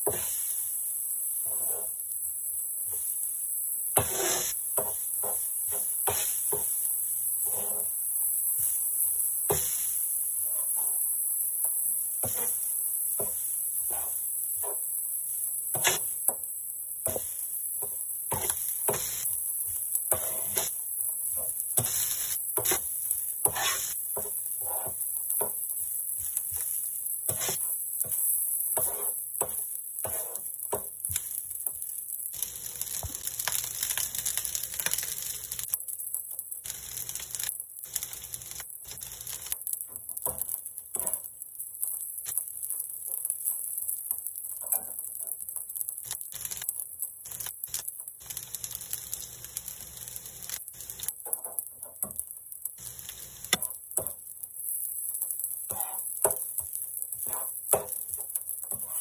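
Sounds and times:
rice sizzling on griddle: 0.0s - 59.0s
metal spatula scraping griddle: 1.4s - 2.0s, 4.0s - 6.7s, 7.4s - 8.0s, 10.4s - 11.0s, 12.2s - 12.6s, 13.2s - 14.9s, 15.7s - 16.2s, 17.0s - 19.2s, 20.0s - 25.6s, 27.3s - 30.9s, 55.7s - 56.5s, 57.2s - 59.0s.

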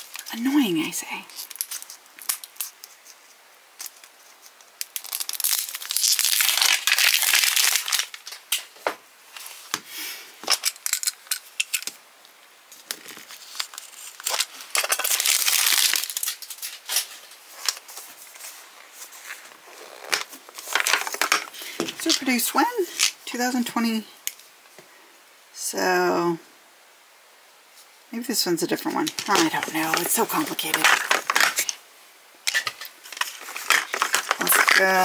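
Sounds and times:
plastic packaging crinkling and tearing: 0.0s - 8.7s, 12.7s - 23.2s, 29.0s - 31.8s, 32.5s - 35.0s.

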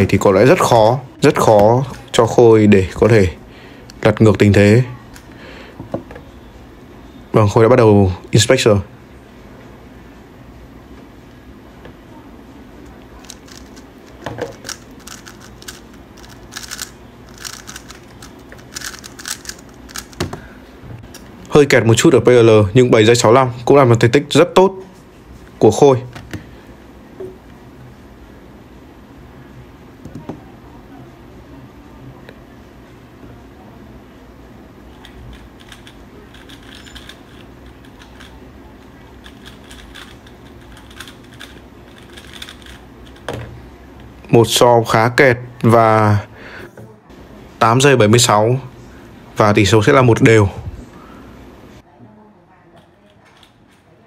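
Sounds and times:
puzzle cube clicking: 13.2s - 20.3s, 35.0s - 38.3s, 39.2s - 43.3s.

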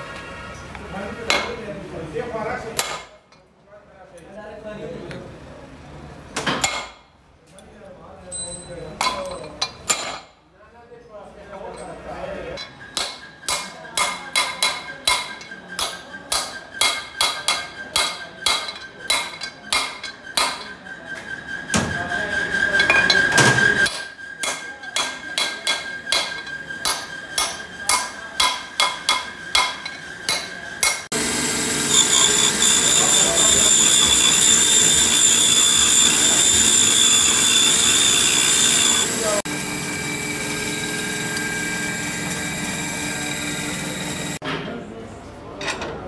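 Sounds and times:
hammer striking steel drift: 23.9s - 39.4s
valve grinding machine: 31.1s - 44.4s.

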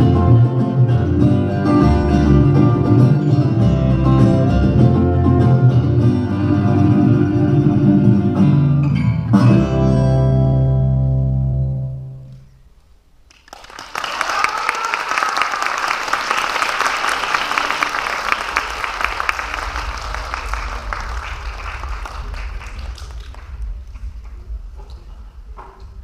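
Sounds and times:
audience applauding: 13.3s - 25.1s.

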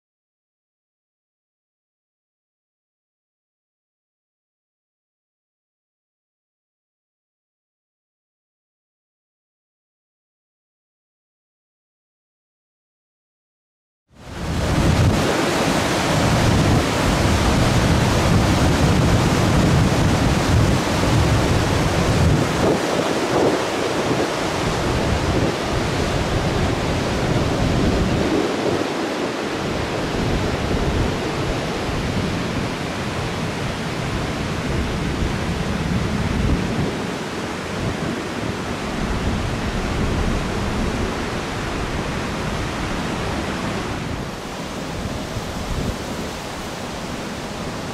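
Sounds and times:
wind buffeting the microphone: 14.3s - 47.9s.

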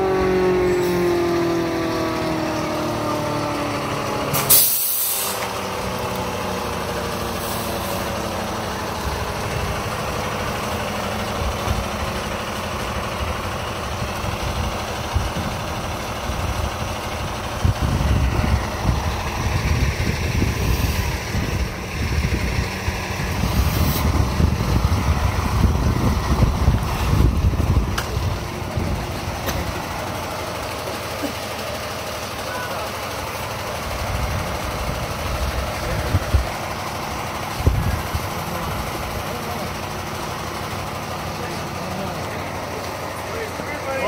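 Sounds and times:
diesel engine slowing and idling: 0.0s - 44.0s
air brakes hissing: 4.3s - 5.6s, 7.3s - 8.2s, 23.4s - 24.2s
wind buffeting microphone: 14.0s - 29.8s, 33.8s - 36.6s, 37.5s - 38.3s.

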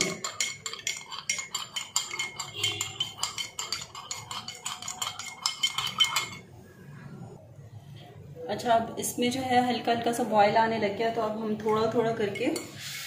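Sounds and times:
spoon clinking in cup: 0.0s - 6.5s.

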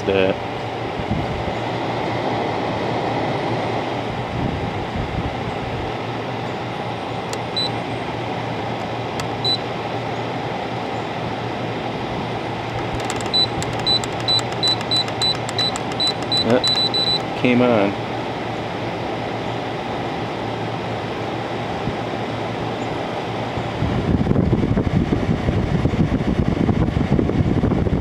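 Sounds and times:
air conditioner fan running: 0.0s - 28.0s
control panel beeps: 7.3s - 7.8s, 9.2s - 9.6s, 12.8s - 17.4s.

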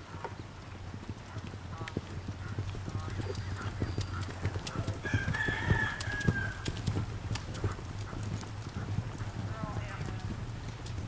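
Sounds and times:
drawn-out animal call: 0.0s - 11.0s
horse hoofbeats on dirt: 0.0s - 11.0s.

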